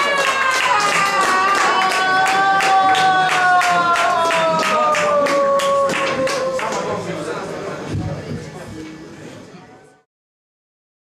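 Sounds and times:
audience clapping in rhythm: 0:00.0 - 0:07.0.

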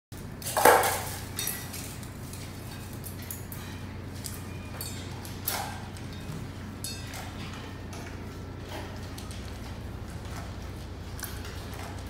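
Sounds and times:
puppies eating dry kibble: 0:00.2 - 0:12.0
metal bowl clinking on tile: 0:00.4 - 0:08.2.

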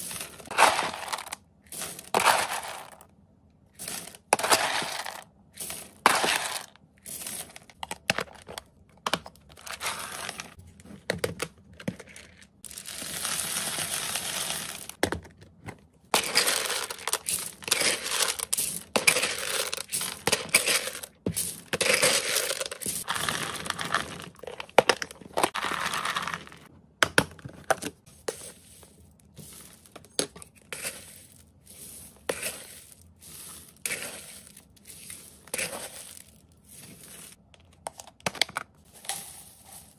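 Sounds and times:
dry pellets rattling into plastic bin: 0:00.0 - 0:03.0, 0:03.8 - 0:07.6, 0:12.6 - 0:15.0, 0:16.2 - 0:24.6, 0:25.4 - 0:26.6, 0:30.7 - 0:37.4, 0:38.8 - 0:39.9
plastic bag crinkling: 0:12.6 - 0:15.0.

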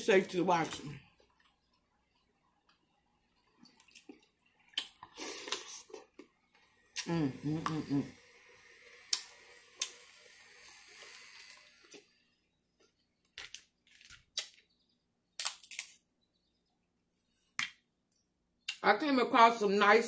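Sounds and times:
crab shells cracking and snapping: 0:13.3 - 0:14.7, 0:15.3 - 0:16.0.

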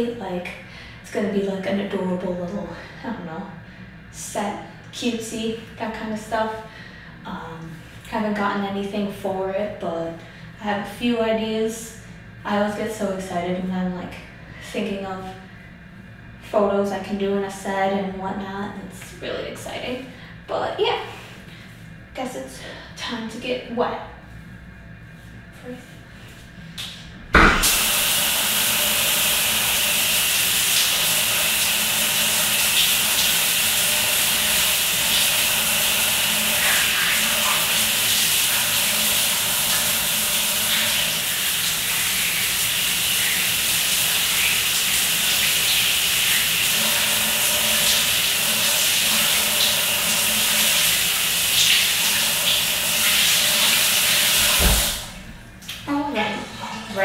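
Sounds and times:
shower water spraying: 0:27.4 - 0:55.2.

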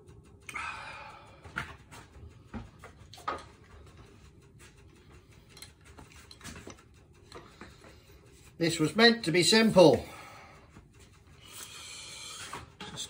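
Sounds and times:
tools clicking and knocking: 0:04.9 - 0:07.8.

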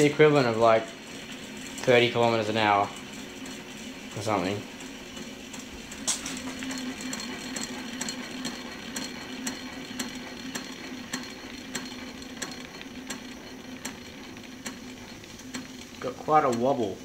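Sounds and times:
small two-stroke engine running: 0:00.0 - 0:17.0
sharp repeated clicking: 0:08.4 - 0:16.7.

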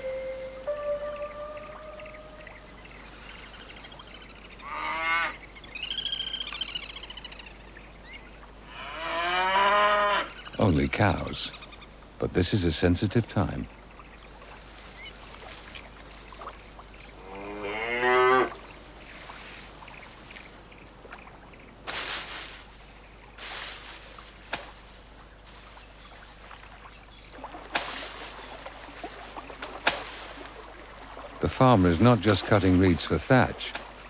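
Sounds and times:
short rustling noises: 0:21.9 - 0:25.8.

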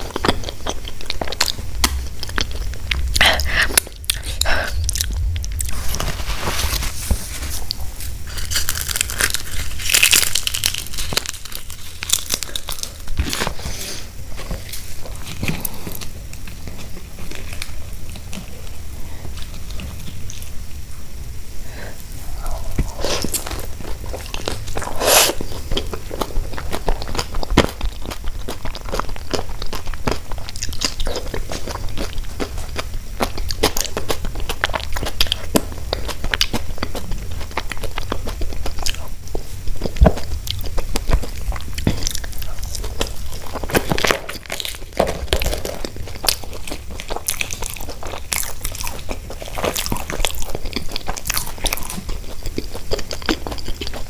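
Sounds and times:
crunchy chewing: 0:00.0 - 0:20.7, 0:22.0 - 0:54.0
biting into crisp bread: 0:07.7 - 0:13.6.

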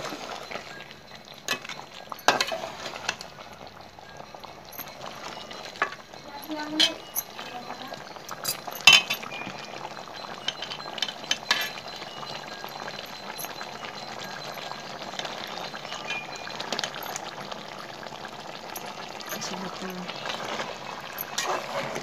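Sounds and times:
curry bubbling in a pot: 0:00.0 - 0:22.0
spatula clinking against pot: 0:00.5 - 0:17.6, 0:18.7 - 0:22.0.

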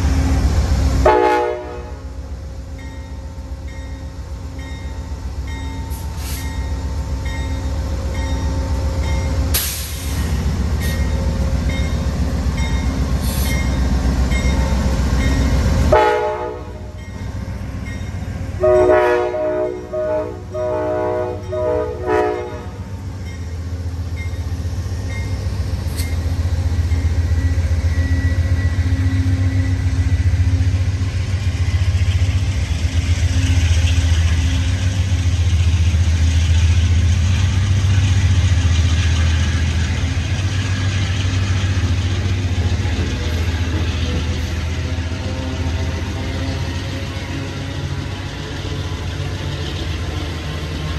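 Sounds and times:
diesel locomotive engine rumble: 0:00.0 - 0:50.9
train horn blasts: 0:01.0 - 0:02.1, 0:15.9 - 0:17.0, 0:18.6 - 0:23.0
hiss: 0:05.9 - 0:06.6, 0:09.5 - 0:11.1, 0:13.2 - 0:13.8.

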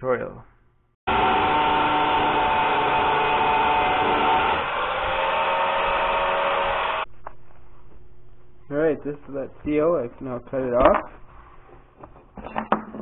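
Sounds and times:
angle grinder cutting metal: 0:01.1 - 0:07.1.

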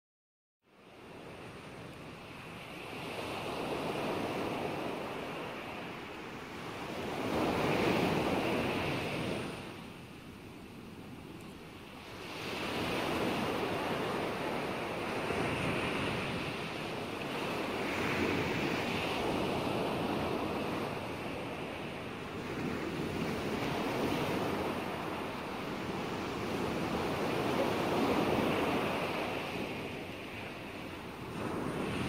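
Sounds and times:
ocean waves rushing: 0:11.8 - 0:32.0.

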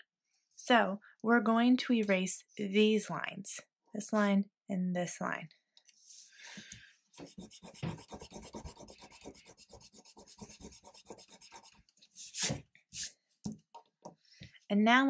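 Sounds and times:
eraser scrubbing on paper: 0:07.2 - 0:13.1.

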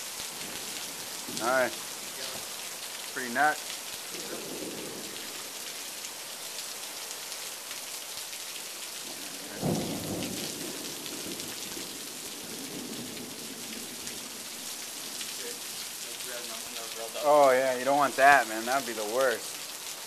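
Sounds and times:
heavy rain hissing: 0:00.0 - 0:20.0
thunder rumble: 0:09.5 - 0:12.0.

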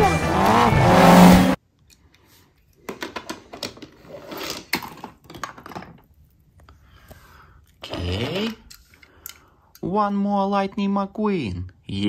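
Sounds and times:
race car engine: 0:00.0 - 0:01.6
toy cars clattering in plastic tub: 0:02.9 - 0:06.1.

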